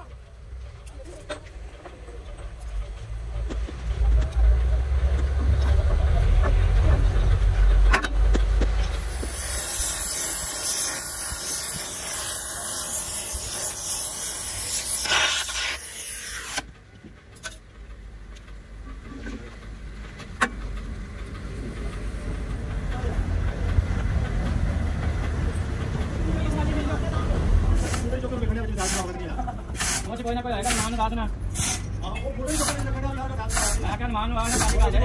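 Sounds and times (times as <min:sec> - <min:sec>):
gas torch hissing: 0:08.8 - 0:16.7, 0:27.6 - 0:35.0.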